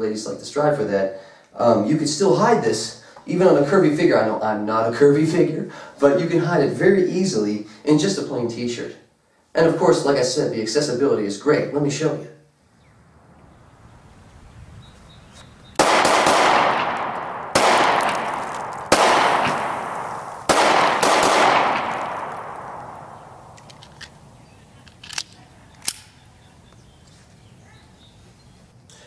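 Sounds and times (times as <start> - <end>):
pistol shots echoing: 15.8 - 24.2
small sharp clicks: 23.5 - 24.2, 24.8 - 26.8.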